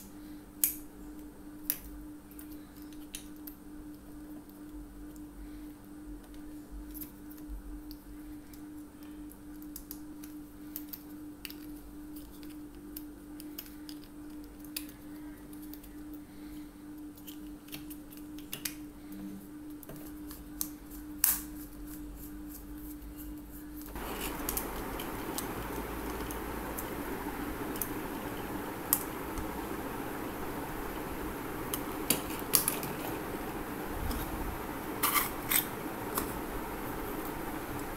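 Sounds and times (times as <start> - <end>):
faint steady hum: 0.0 - 37.9
steady hiss: 23.8 - 37.9.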